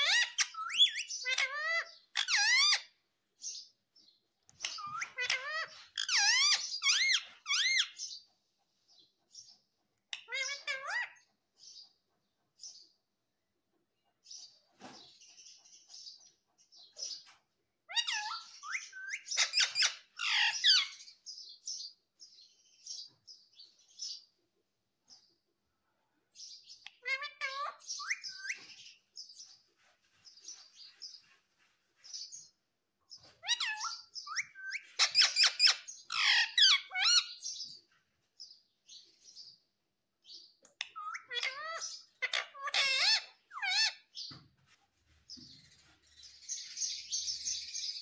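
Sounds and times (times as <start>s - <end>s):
parakeet squawking and chirping: 0.0s - 8.3s, 10.0s - 11.8s, 16.8s - 22.0s, 26.4s - 32.5s, 33.1s - 44.4s, 45.2s - 48.0s.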